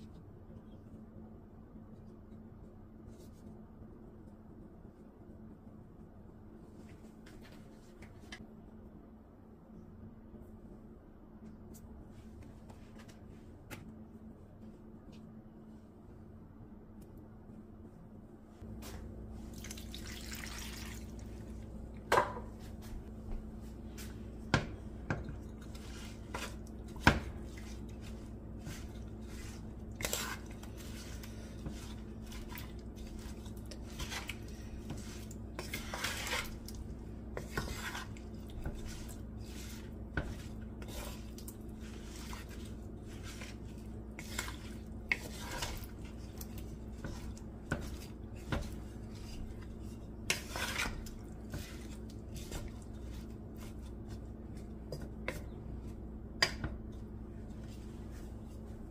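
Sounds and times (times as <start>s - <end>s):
water pouring into a pot: 19.6s - 21.2s
wooden spoon stirring in a pot: 22.6s - 58.9s.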